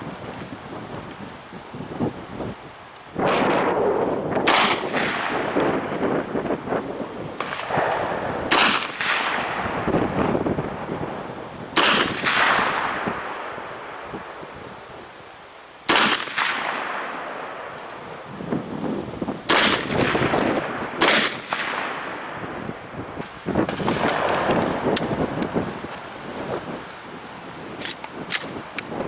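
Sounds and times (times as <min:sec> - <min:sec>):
gunshots with ringing echo: 0:03.2 - 0:06.1, 0:07.4 - 0:10.2, 0:11.8 - 0:14.3, 0:15.9 - 0:17.8, 0:19.5 - 0:22.6.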